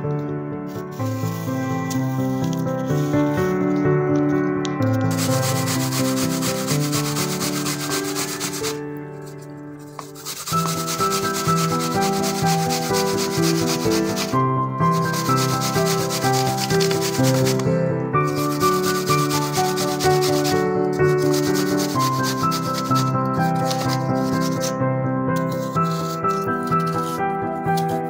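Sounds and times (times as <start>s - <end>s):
background music: 0.0s - 28.0s
apple grated on metal grater: 5.0s - 8.8s, 9.8s - 17.6s, 18.2s - 24.7s, 25.4s - 28.0s.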